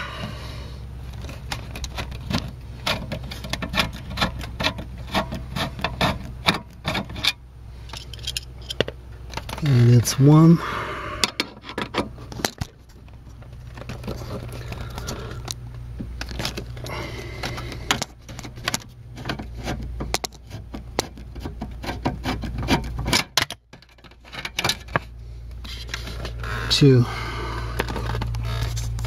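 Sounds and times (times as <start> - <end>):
low steady hum: 0.0 - 29.0
hand tool turning a screw: 1.5 - 8.8, 16.3 - 25.0.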